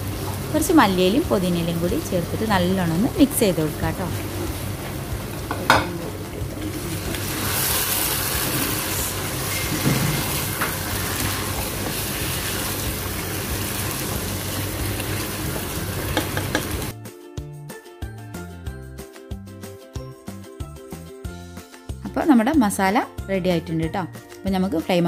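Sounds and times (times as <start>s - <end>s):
food sizzling in a pot: 0.0s - 16.9s
spatula stirring: 7.1s - 16.9s
background music: 10.2s - 25.0s.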